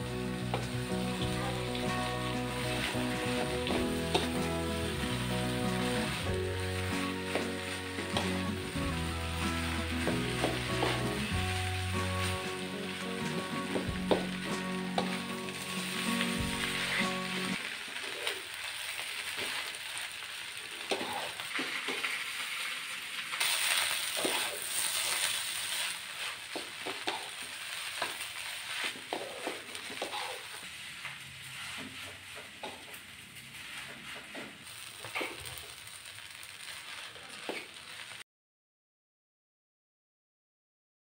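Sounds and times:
rice sizzling in a wok: 0:00.0 - 0:38.2
wooden spatula scraping a pan: 0:00.4 - 0:11.5, 0:20.8 - 0:22.2, 0:23.4 - 0:35.5.

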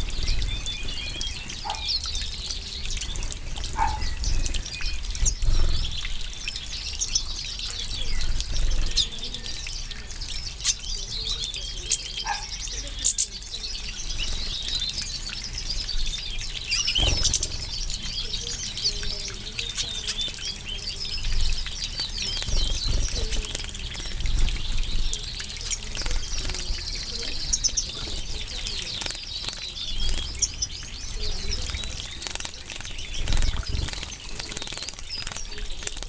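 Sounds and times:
birds splashing in water: 0:00.0 - 0:36.0
finches chirping and twittering: 0:00.0 - 0:36.0
wing flutters: 0:21.9 - 0:26.8, 0:31.6 - 0:36.0.

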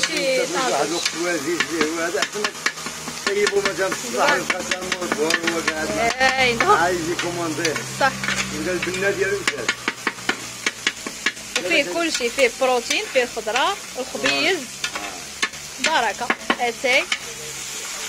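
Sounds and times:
meat sizzling: 0:00.0 - 0:18.0
metal blade scraping on griddle: 0:00.0 - 0:18.0
wavering pitched tone: 0:05.8 - 0:09.6.

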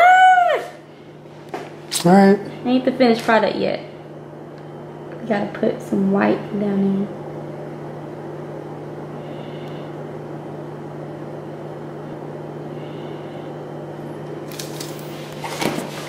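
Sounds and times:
low background hum: 0:00.0 - 0:16.0.

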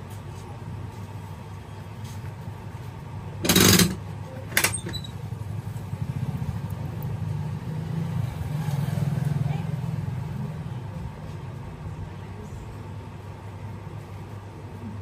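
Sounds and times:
low engine hum: 0:05.1 - 0:12.8.

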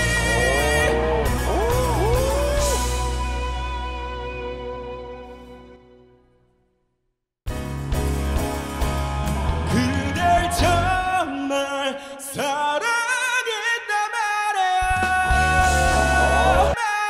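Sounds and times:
bass guitar: 0:00.0 - 0:06.2, 0:07.5 - 0:11.2, 0:14.8 - 0:16.8
ballad singing with band: 0:09.4 - 0:12.8, 0:14.8 - 0:16.8.

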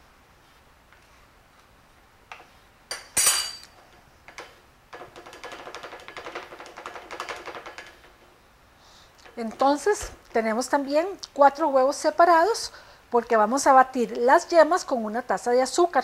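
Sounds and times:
sharp ringing clink: 0:02.9 - 0:03.7.

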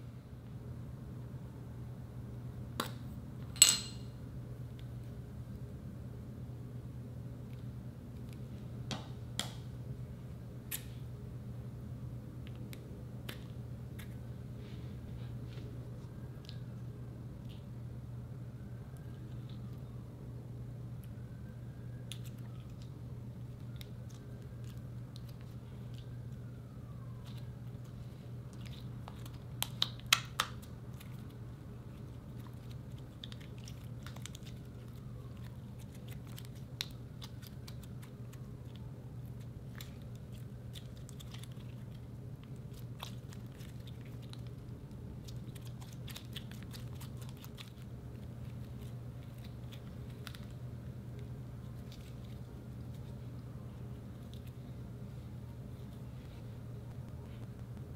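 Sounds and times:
steady low hum: 0:00.0 - 0:57.9
slime squishing with sticky pops: 0:21.9 - 0:54.7.

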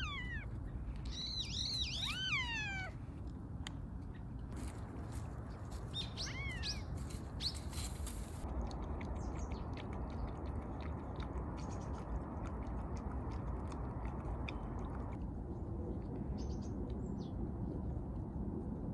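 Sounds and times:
bird chirps: 0:00.0 - 0:02.5
dry leaves rustling underfoot: 0:04.6 - 0:08.4
animals chewing and licking: 0:07.2 - 0:17.0.

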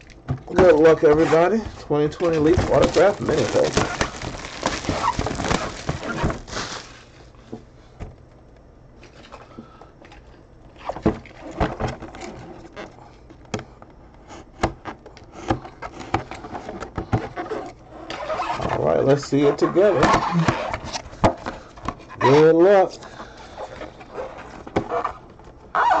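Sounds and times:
plastic shrink wrap crinkling: 0:02.1 - 0:07.3
crackles and taps of handling: 0:13.2 - 0:17.4.

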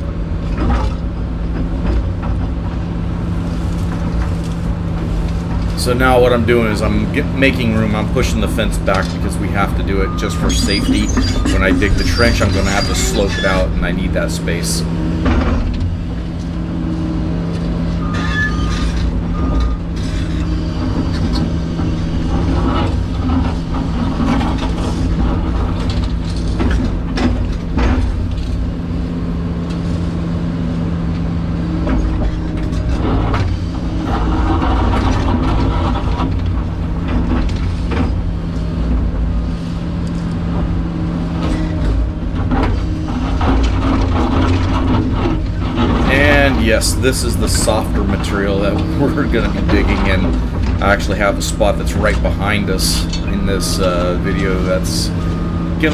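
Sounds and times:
excavator diesel engine running: 0:00.0 - 0:55.9
hydraulics working: 0:00.0 - 0:55.9.

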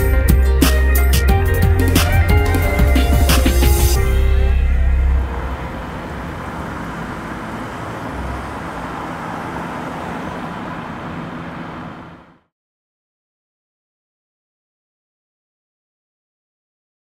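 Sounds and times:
deep bass note: 0:00.0 - 0:05.8
road traffic hum: 0:00.0 - 0:12.5.

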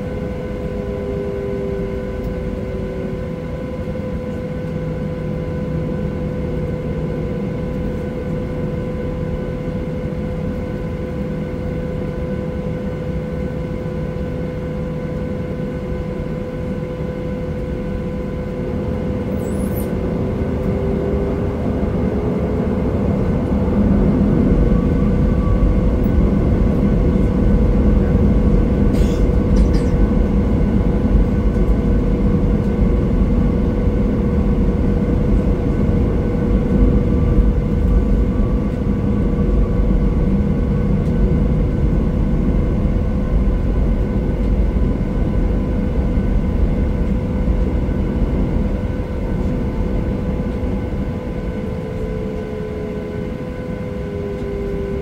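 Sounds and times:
airplane cabin rumble: 0:00.0 - 0:55.0
jet engine whine: 0:00.0 - 0:55.0.

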